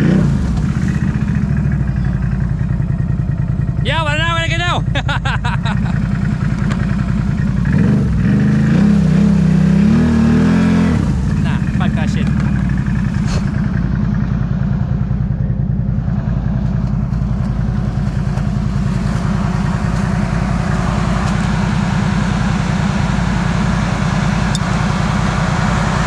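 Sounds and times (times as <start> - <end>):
vehicle engine running at low revs: 0.0 - 26.0.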